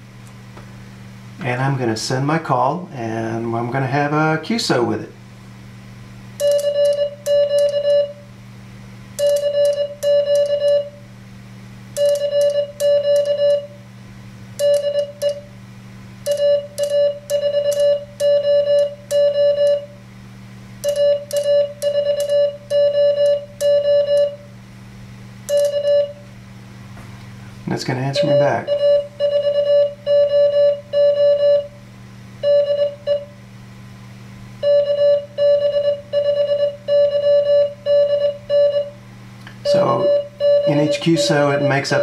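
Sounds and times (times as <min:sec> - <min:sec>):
low steady hum: 0:00.0 - 0:42.0
morse code sidetone beeps: 0:06.4 - 0:08.2, 0:09.2 - 0:11.0, 0:12.0 - 0:13.8, 0:14.6 - 0:15.4, 0:16.3 - 0:19.9, 0:20.8 - 0:24.4, 0:25.5 - 0:26.2, 0:28.1 - 0:31.7, 0:32.4 - 0:33.3, 0:34.6 - 0:39.0, 0:39.6 - 0:42.0.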